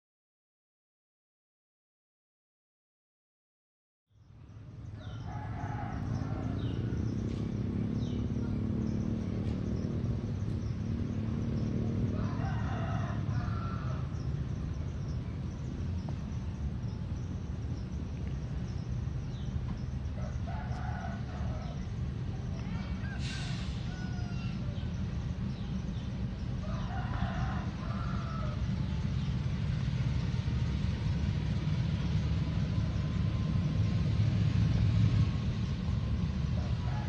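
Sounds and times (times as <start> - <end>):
small birds chirping: 4.2 - 12.4, 13.3 - 31.1
steady low rumble: 4.3 - 37.0
rooster crowing: 5.0 - 7.1, 12.1 - 14.3, 20.2 - 21.8, 22.6 - 24.8, 26.6 - 28.9, 36.5 - 37.0.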